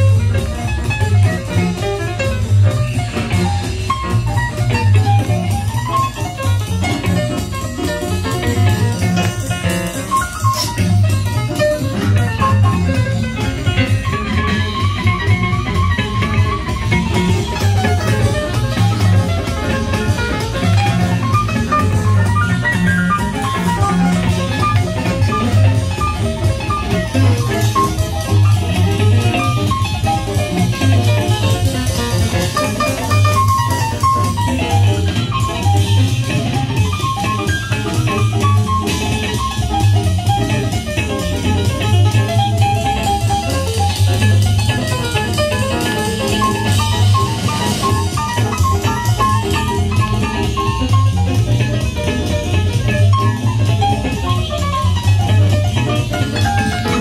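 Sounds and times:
bass line: 0:00.0 - 0:57.0
music from a record player: 0:00.0 - 0:57.0
plucked guitar notes: 0:00.0 - 0:57.0.

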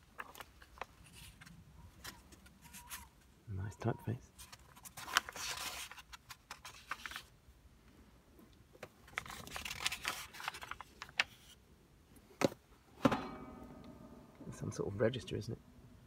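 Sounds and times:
paper pages rustling: 0:00.0 - 0:03.3, 0:04.3 - 0:07.4, 0:08.8 - 0:11.6.

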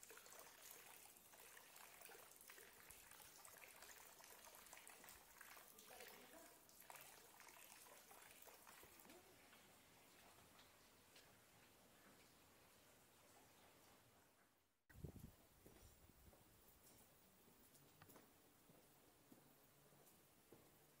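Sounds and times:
fountain trickling into basin: 0:00.0 - 0:12.5
water drips and splashes: 0:00.0 - 0:14.2.

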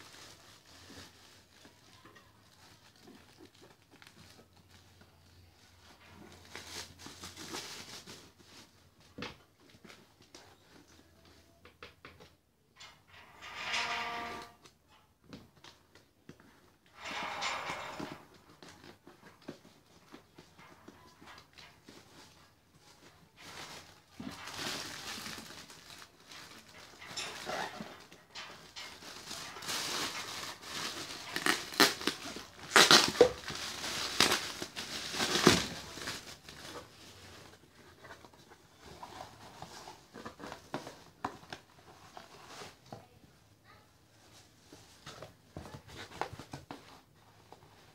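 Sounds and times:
cardboard and paper rustling: 0:00.0 - 0:12.3, 0:15.3 - 0:47.9
plastic bag crinkling: 0:22.9 - 0:38.1.

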